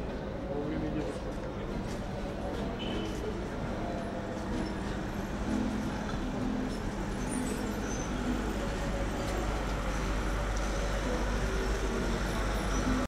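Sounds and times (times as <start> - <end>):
faint indistinct noise: 0.0 - 13.0
traffic rumble: 0.0 - 13.0.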